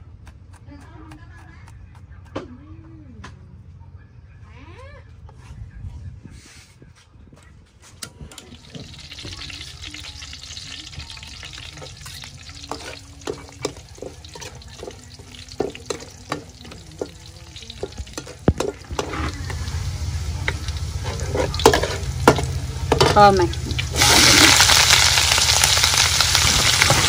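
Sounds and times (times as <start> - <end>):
garlic sizzling in oil: 8.4 - 27.0
metal ladle scraping wok: 11.5 - 16.8, 17.7 - 24.9.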